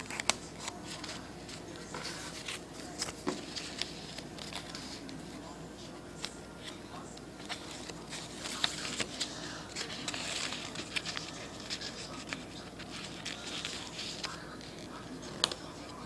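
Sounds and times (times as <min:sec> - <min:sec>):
sharp paper ticks: 0:00.0 - 0:01.6, 0:07.4 - 0:16.0
paper rustling and crackling: 0:00.0 - 0:16.0.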